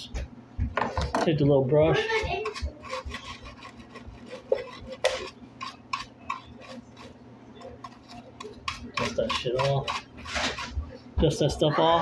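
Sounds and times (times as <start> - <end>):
brush scrubbing: 1.9 - 11.5.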